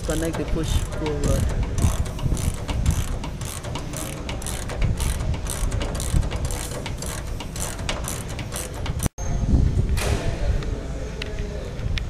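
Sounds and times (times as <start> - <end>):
ratchet wrench clicking: 0.0 - 9.1.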